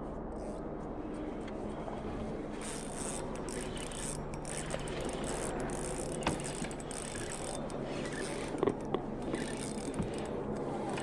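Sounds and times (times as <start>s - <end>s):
fishing reel gears whirring: 2.5s - 11.0s
sharp reel clicks: 2.6s - 11.0s.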